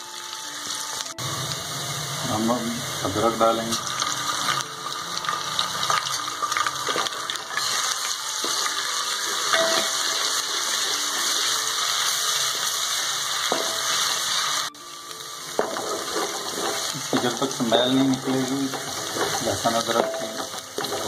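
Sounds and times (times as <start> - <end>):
onions sizzling in hot oil: 0.0 - 21.0
wooden spatula scraping pot: 15.6 - 21.0.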